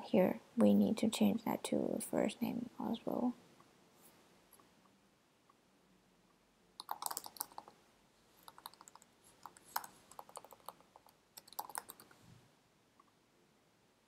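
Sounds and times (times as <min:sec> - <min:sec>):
typing on keyboard: 0:06.8 - 0:07.8, 0:08.4 - 0:12.2.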